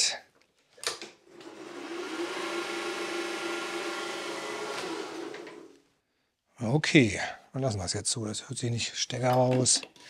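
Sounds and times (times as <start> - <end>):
electric mower reel whirring: 1.4 - 5.8.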